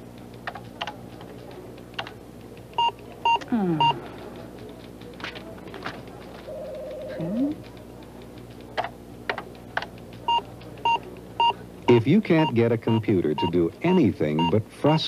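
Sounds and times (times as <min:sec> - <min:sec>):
low steady hum: 0:00.0 - 0:15.0
keyboard keys clicking: 0:00.1 - 0:11.4
short computer beeps: 0:10.3 - 0:14.6.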